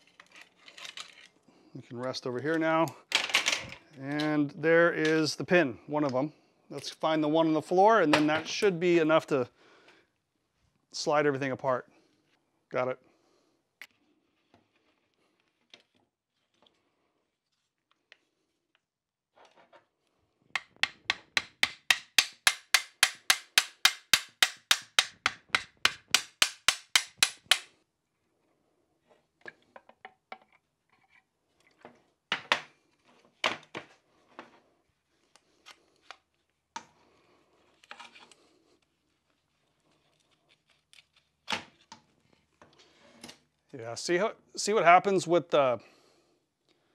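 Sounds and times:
metal parts clicking and knocking: 20.6 - 27.7.

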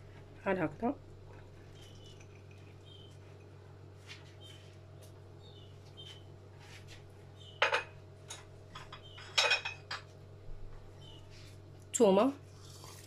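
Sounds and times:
low steady hum: 0.0 - 13.0
kitchenware clinking: 1.8 - 2.8, 7.6 - 10.1.

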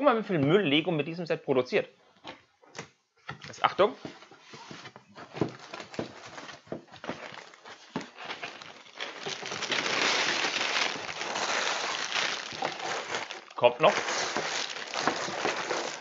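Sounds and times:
plastic bags rustling and crinkling: 4.3 - 16.0.

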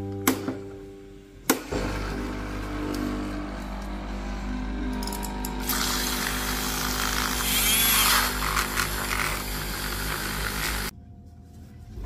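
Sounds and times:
milk frother motor whir: 1.7 - 10.9.

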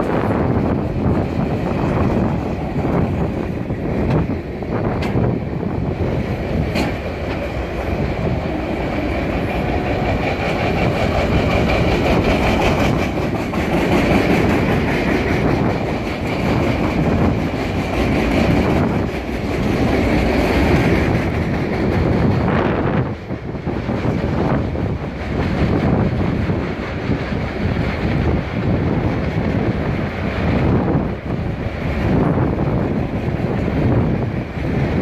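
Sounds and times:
train wheels rumbling on rail: 0.0 - 35.0
wheels clacking over rail joints: 0.0 - 35.0.

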